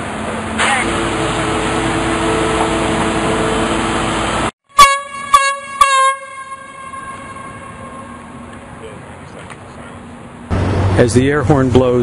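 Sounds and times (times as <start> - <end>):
construction site noise: 0.0 - 12.0
loud air horn blasts: 4.7 - 8.4.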